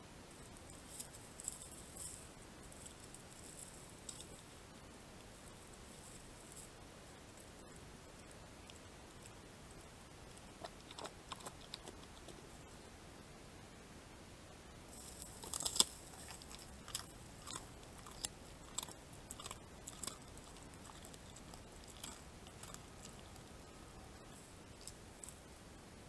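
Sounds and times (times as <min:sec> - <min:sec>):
hyena chewing food crunches: 0:10.3 - 0:12.6, 0:15.0 - 0:25.5.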